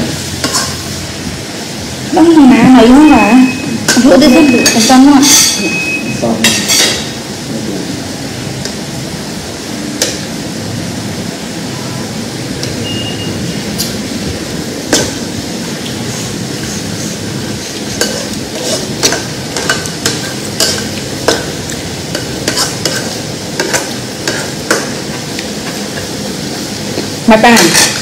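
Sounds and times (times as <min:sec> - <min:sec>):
food sizzling in a pan: 0:00.0 - 0:28.0
metal utensil clinking on pan: 0:03.9 - 0:05.8, 0:06.4 - 0:07.1, 0:27.5 - 0:28.0.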